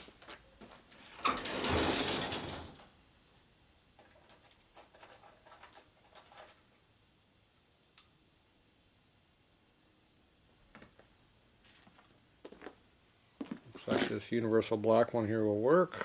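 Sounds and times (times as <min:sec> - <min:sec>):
metal drawer sliding open: 0:01.2 - 0:02.8.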